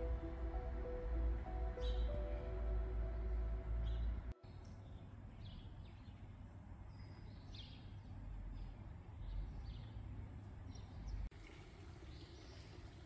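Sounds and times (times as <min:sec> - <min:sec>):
birds chirping: 0:00.0 - 0:10.0
faint low outdoor rumble: 0:00.0 - 0:13.0.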